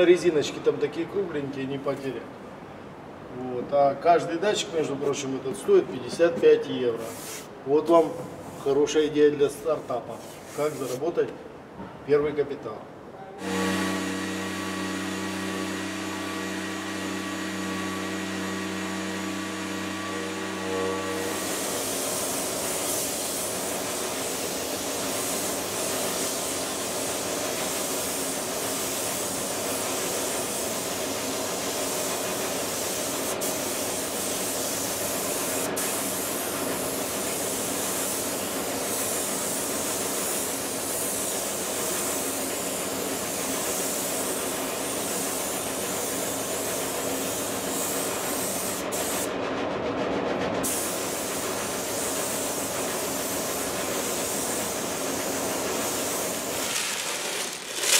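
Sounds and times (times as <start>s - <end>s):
spray gun hissing: 13.4s - 49.3s, 50.6s - 57.9s.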